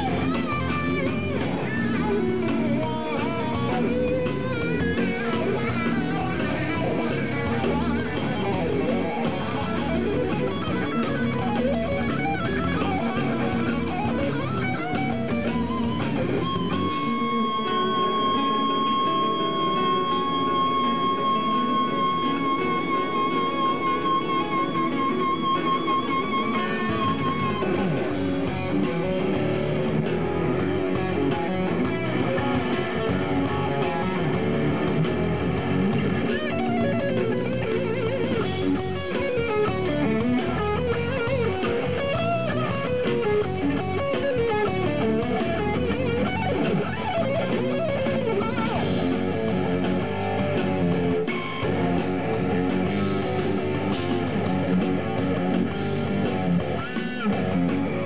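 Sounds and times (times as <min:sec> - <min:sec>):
electric guitar through amplifier: 0:00.0 - 0:58.0.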